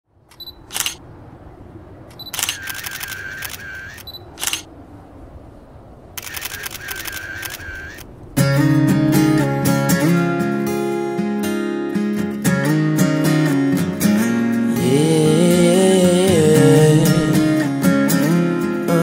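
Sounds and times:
camera shutter clicks: 0.3s - 1.0s, 2.1s - 4.7s, 6.2s - 8.1s
short high beeps: 0.3s - 1.0s, 2.1s - 4.6s, 6.2s - 8.0s
acoustic guitar music: 8.4s - 19.0s.

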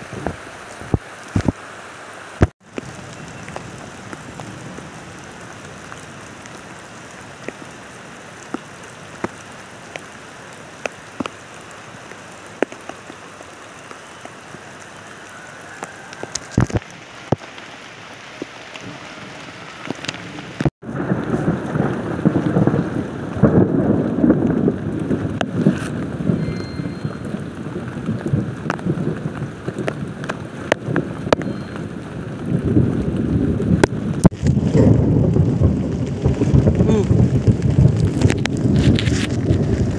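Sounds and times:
rain on plastic tarp: 0.0s - 39.9s
steady rain falling: 0.0s - 39.9s.

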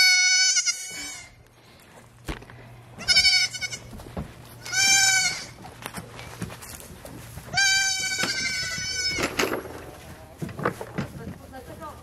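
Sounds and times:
goat kid bleating: 0.0s - 1.4s, 3.0s - 4.0s, 4.6s - 5.8s, 7.4s - 9.4s.

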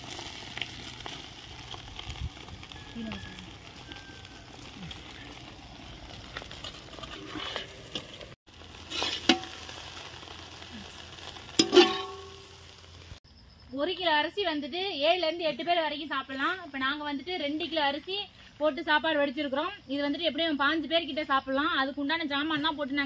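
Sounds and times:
food sizzling in a pan: 0.0s - 13.2s
metal ladle clanking on pan: 11.6s - 12.4s.

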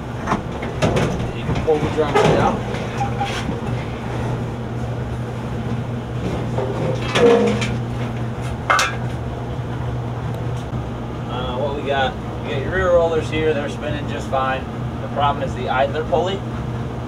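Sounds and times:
metal drum clanking and scraping: 0.0s - 4.5s, 5.6s - 9.2s.

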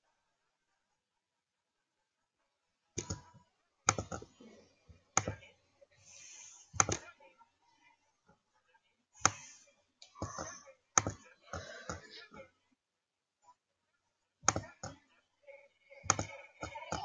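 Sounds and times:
computer mouse clicks: 3.0s - 4.3s, 5.2s - 5.4s, 6.4s - 7.1s, 9.2s - 12.1s, 14.5s - 15.0s, 16.0s - 17.0s.

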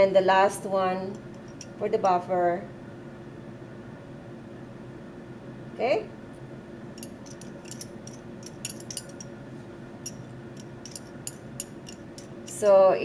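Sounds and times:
faint steady hum: 0.0s - 13.0s
glassware clinking: 7.0s - 9.3s, 10.1s - 12.6s.

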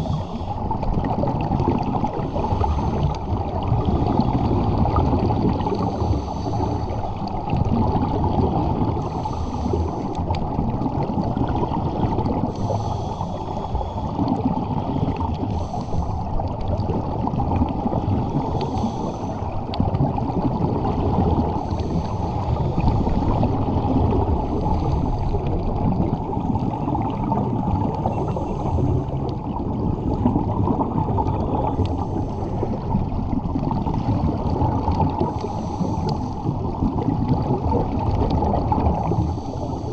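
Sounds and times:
scuba regulator breathing hiss: 0.0s - 0.6s, 5.8s - 7.1s, 9.1s - 10.2s, 12.5s - 14.2s, 15.4s - 16.2s, 18.3s - 19.5s, 35.3s - 36.4s, 39.1s - 39.9s
underwater rumble and bubbles: 0.0s - 39.9s.

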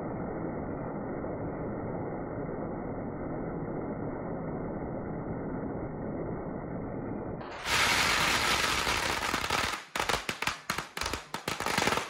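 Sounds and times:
firecrackers crackling and banging: 7.5s - 12.0s.

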